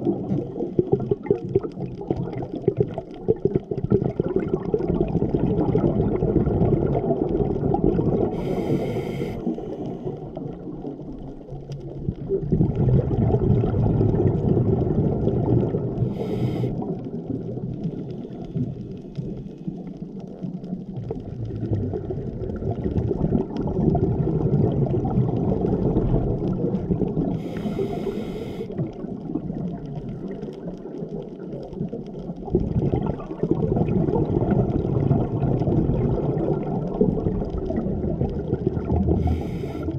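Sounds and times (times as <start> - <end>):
bubbling exhalations: 0.0 - 11.0, 12.0 - 19.4, 21.0 - 30.7, 31.9 - 39.9
hissing regulator inhalations: 8.4 - 10.2, 16.1 - 16.9, 27.4 - 28.8, 39.2 - 39.9.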